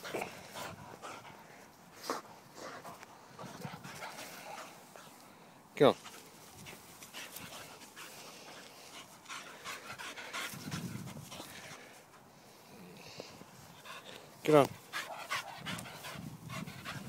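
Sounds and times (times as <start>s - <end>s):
dog panting: 0.0s - 5.2s, 6.0s - 12.7s, 13.4s - 17.0s
soft rustles: 6.0s - 9.8s.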